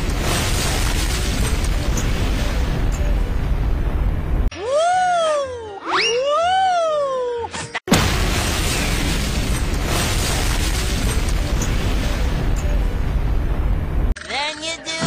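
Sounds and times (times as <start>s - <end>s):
explosion with deep rumble: 0.0s - 4.5s, 7.9s - 14.2s.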